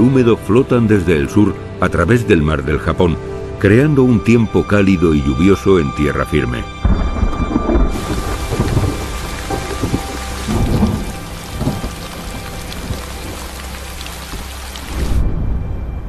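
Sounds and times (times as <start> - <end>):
low rumble: 6.8 - 16.0
thunder rolling: 6.8 - 16.0
heavy rain on water and foliage: 6.9 - 15.6.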